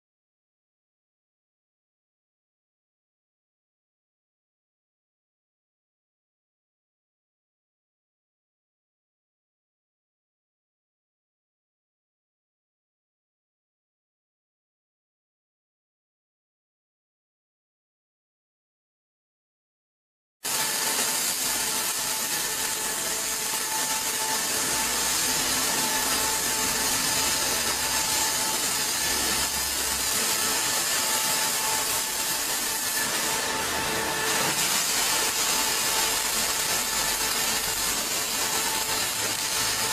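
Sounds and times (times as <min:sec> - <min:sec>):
welding arc hissing: 0:20.4 - 0:39.9.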